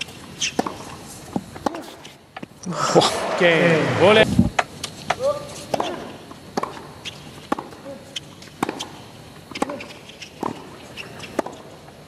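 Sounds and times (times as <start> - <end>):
tennis ball hits and bounces: 0.0 - 1.0, 1.6 - 2.0, 4.5 - 7.8, 8.5 - 11.7.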